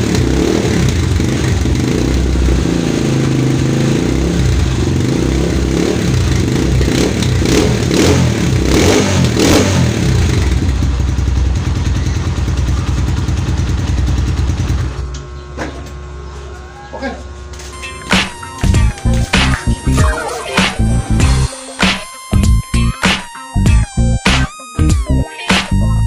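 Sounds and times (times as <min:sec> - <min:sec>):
motorcycle engine revving: 0:00.0 - 0:15.4, 0:18.1 - 0:21.5.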